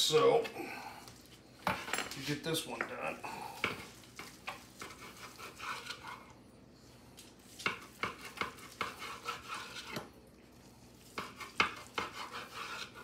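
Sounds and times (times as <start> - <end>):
knife sawing through brisket: 4.7 - 6.2, 7.9 - 10.0, 11.0 - 13.0.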